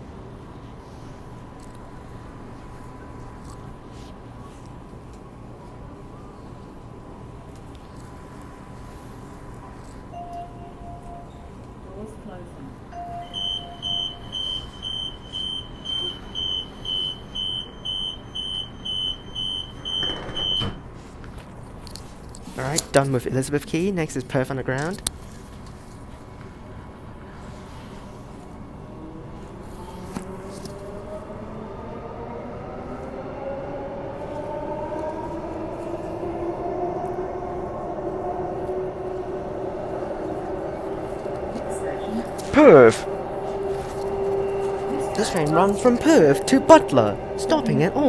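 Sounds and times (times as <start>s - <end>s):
high door warning beeps: 10.2s - 11.4s, 13.0s - 20.9s
train traction motors whining: 13.0s - 20.8s, 33.0s - 48.0s
train doors shutting with thud: 13.0s - 21.1s
wheels rumbling on rails: 24.8s - 48.0s.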